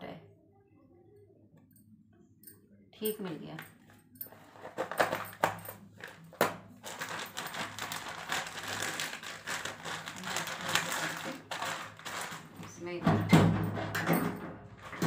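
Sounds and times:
wrapper crinkling and rustling: 0:04.4 - 0:12.9.

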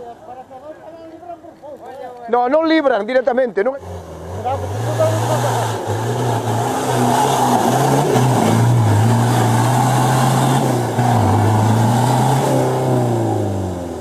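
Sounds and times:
engine revving at high revs: 0:03.8 - 0:14.0.

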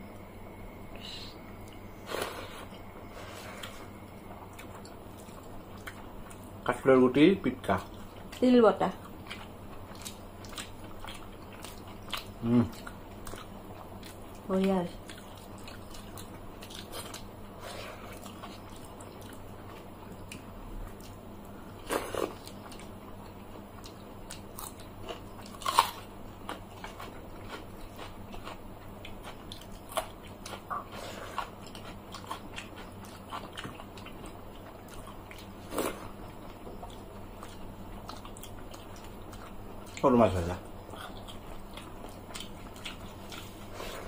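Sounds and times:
chewing: 0:01.6 - 0:06.8, 0:07.7 - 0:44.0.

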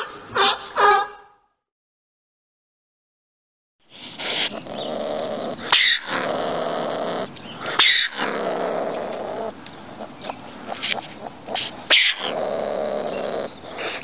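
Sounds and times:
shrill animal outbursts: 0:00.0 - 0:01.4
ring-tailed cat calling: 0:07.6 - 0:12.4.

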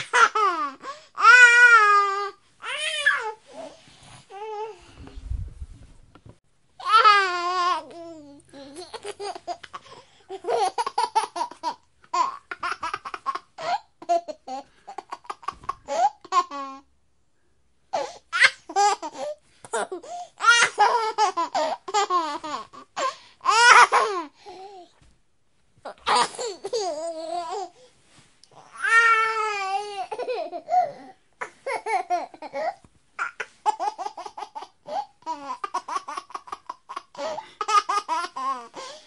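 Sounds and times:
baby laughing: 0:08.6 - 0:16.8, 0:18.3 - 0:24.3, 0:28.6 - 0:39.0.

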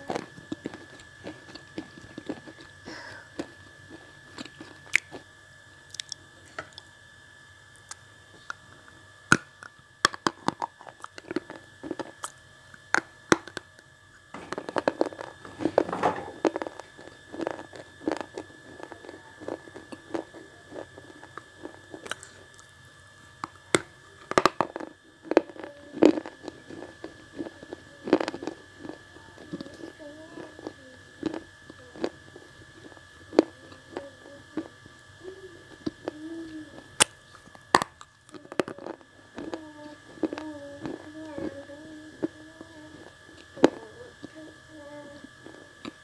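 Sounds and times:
brittle chewing crunches: 0:00.0 - 0:02.8, 0:03.4 - 0:06.9, 0:09.3 - 0:22.8, 0:23.4 - 0:34.0, 0:37.0 - 0:41.0
steady high whine: 0:00.0 - 0:46.0.

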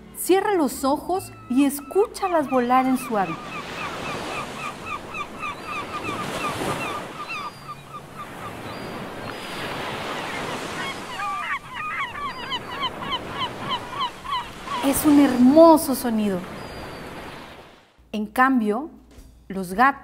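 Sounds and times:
gulls calling: 0:00.4 - 0:17.8
surf washing: 0:03.1 - 0:17.8.

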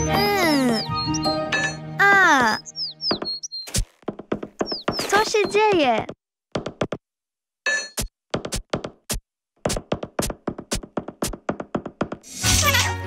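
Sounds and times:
cartoon hammering and banging: 0:01.5 - 0:07.0, 0:07.7 - 0:12.3.

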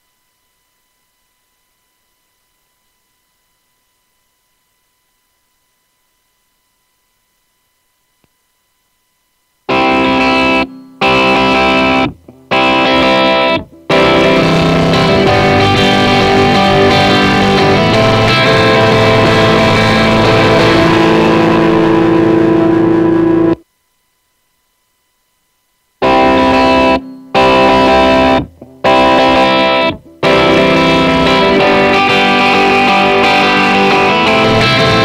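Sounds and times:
distorted electric guitar: 0:09.7 - 0:23.6, 0:26.0 - 0:35.0.

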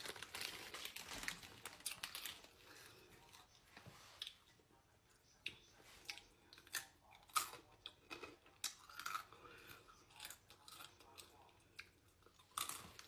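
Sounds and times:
crunching and chewing chips: 0:00.0 - 0:03.6, 0:05.5 - 0:13.0.

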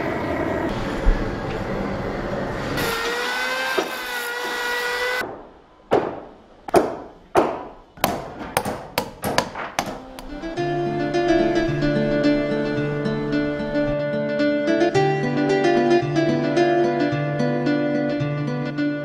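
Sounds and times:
angle grinder whining: 0:02.3 - 0:05.2
hammer blows on timber: 0:05.2 - 0:10.5.

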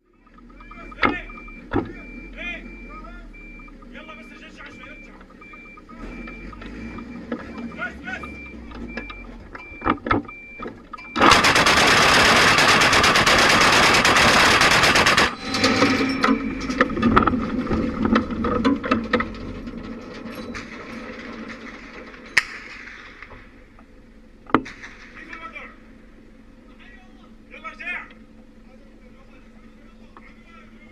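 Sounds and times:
autocannon burst: 0:11.2 - 0:16.6.

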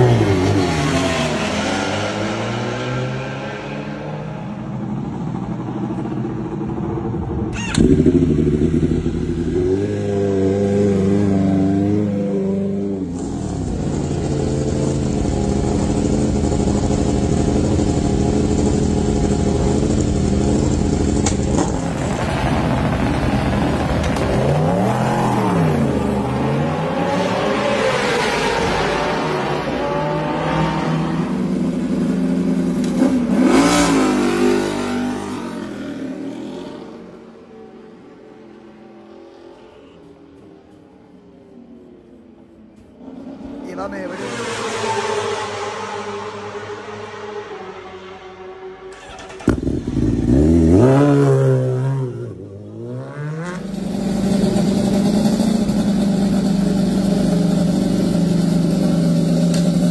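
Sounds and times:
motorcycle engines idling and revving: 0:00.0 - 0:59.9
motorcycle engine firing up: 0:06.6 - 0:09.6, 0:48.9 - 0:51.6.

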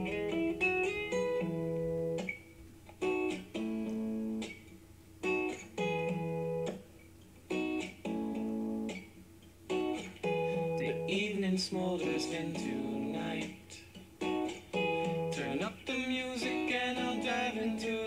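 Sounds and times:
pop-rock guitar chords: 0:00.0 - 0:18.0.

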